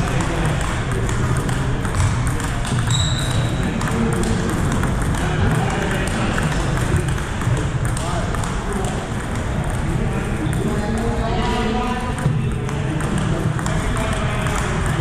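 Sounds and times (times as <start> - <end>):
table tennis ball clicking: 0.0 - 11.2
hubbub of voices: 0.0 - 15.0
high-pitched squeak: 2.9 - 3.6.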